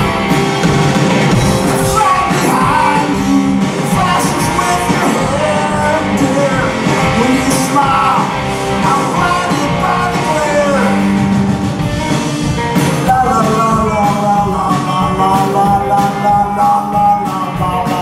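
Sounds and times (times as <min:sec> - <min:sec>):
drum kit: 0:00.0 - 0:18.0
electric guitars: 0:00.0 - 0:18.0
man singing: 0:01.3 - 0:11.3, 0:13.0 - 0:18.0.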